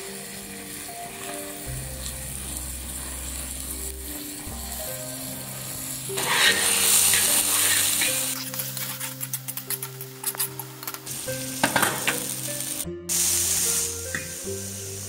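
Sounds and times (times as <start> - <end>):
prawns frying in oil: 0.0 - 15.0
soft background music: 0.0 - 15.0
metal spatula scraping pan: 6.2 - 10.9.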